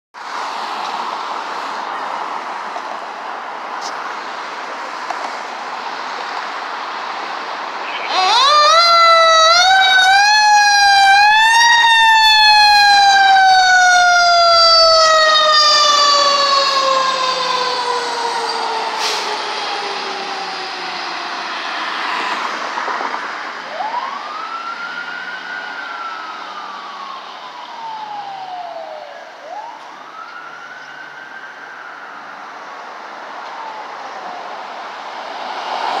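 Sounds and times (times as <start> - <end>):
fire engine siren wailing: 7.8 - 36.0.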